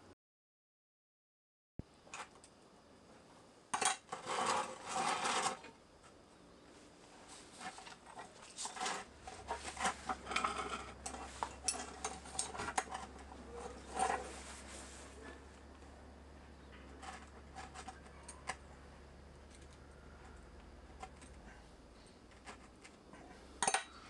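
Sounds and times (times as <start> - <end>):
faint low hum: 1.8 - 24.0
soil scraping in a pot: 4.1 - 5.7, 7.2 - 15.6.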